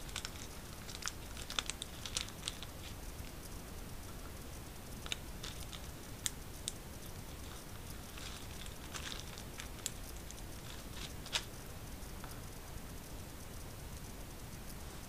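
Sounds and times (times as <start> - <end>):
plastic bag crinkling: 0.0 - 3.3, 5.0 - 11.6.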